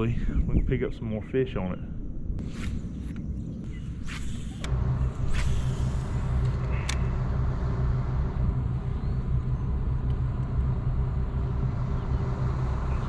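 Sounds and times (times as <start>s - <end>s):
motor humming: 3.0s - 13.0s
sharp clicks: 6.4s - 7.1s.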